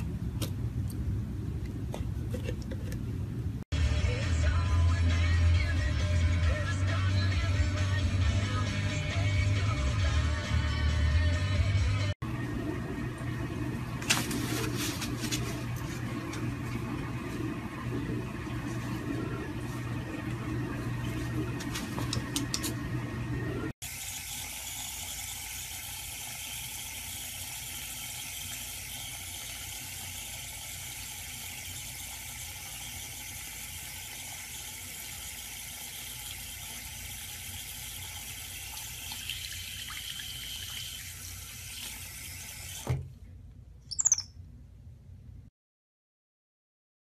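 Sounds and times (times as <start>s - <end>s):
tap water running: 12.2s - 43.1s
baby monkey squeaking: 43.9s - 44.3s.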